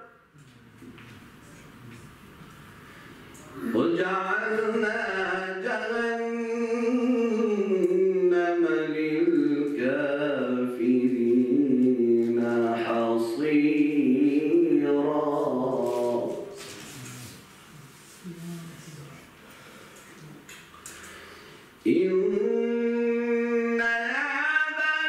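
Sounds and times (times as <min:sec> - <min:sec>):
man chanting recitation: 0:03.4 - 0:17.5, 0:21.8 - 0:25.0.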